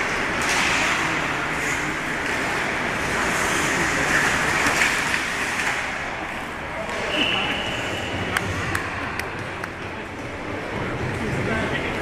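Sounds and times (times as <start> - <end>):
hockey skates scraping ice: 0.0 - 8.8
ice rink noise: 0.0 - 12.0.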